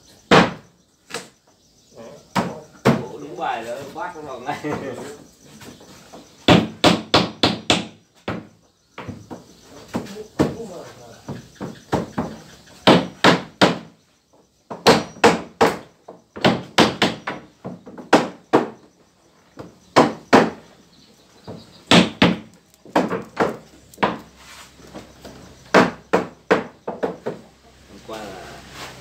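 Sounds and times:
hammers striking nails into wood: 0.3s - 1.3s, 6.4s - 10.6s, 11.3s - 14.0s, 14.7s - 18.8s, 19.9s - 20.7s, 21.5s - 24.3s, 25.7s - 27.4s.

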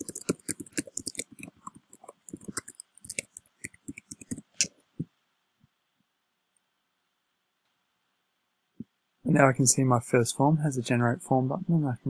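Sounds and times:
keyboard typing: 0.0s - 4.7s.

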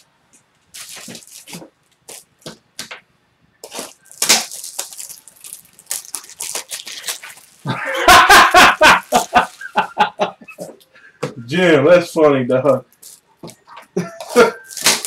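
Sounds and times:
man laughing loudly: 7.6s - 10.8s, 14.0s - 14.6s.

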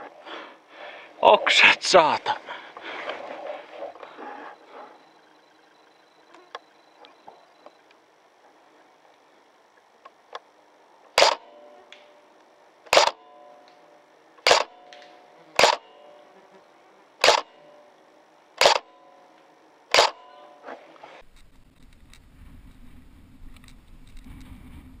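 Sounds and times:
airsoft gun firing single shots: 11.2s - 12.2s, 12.9s - 13.4s, 14.4s - 16.0s, 17.2s - 17.7s, 18.6s - 19.0s, 19.9s - 20.4s.

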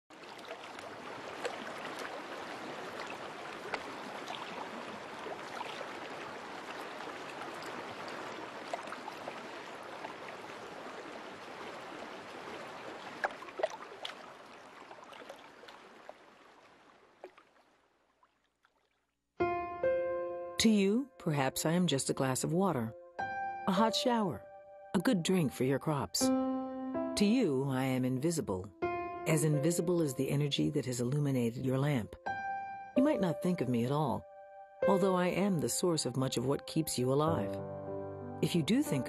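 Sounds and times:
stream water rushing: 0.1s - 18.0s.

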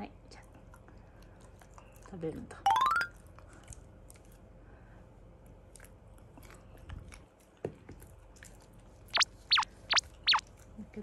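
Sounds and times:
dog chewing with crunching bites: 5.7s - 9.1s.

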